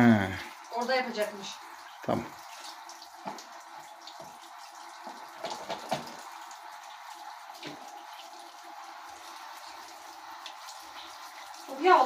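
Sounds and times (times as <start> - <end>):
tap running into sink: 3.2 - 3.5, 5.0 - 6.4, 7.5 - 8.1
cutting board knocks and clatters: 5.4 - 6.2.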